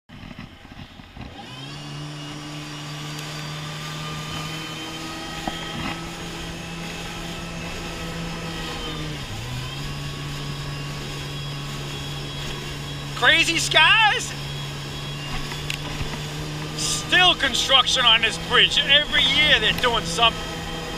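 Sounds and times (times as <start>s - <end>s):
jet ski engine running: 0.1s - 20.9s.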